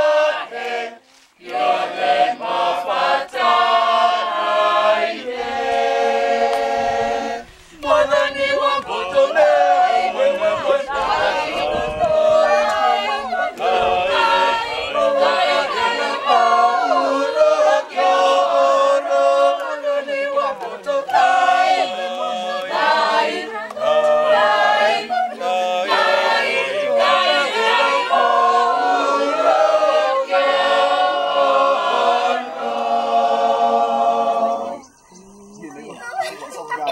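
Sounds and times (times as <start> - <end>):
choir singing a hymn: 0.0 - 36.0.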